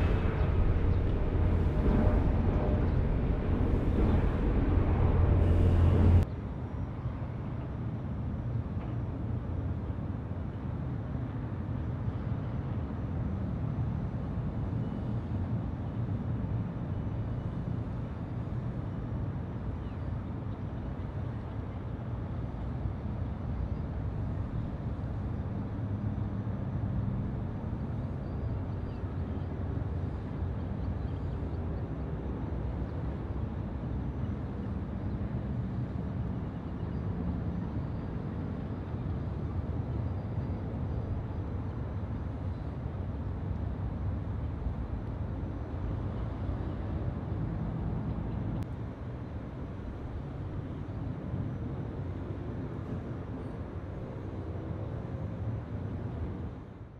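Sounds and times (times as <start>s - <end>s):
jet engines at take-off thrust: 0.0s - 7.2s.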